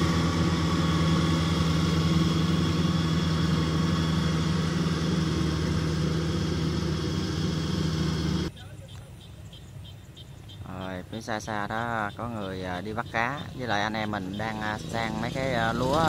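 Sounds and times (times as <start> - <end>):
diesel engine running steadily: 0.0 - 8.5, 12.2 - 16.0.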